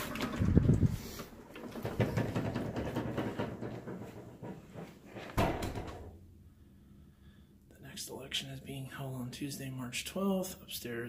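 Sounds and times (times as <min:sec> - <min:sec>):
loud thump: 0:05.4 - 0:06.1.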